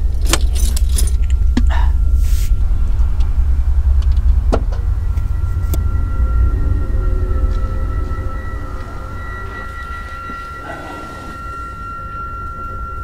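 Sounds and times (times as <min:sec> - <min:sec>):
faint high tone: 0:05.0 - 0:13.0.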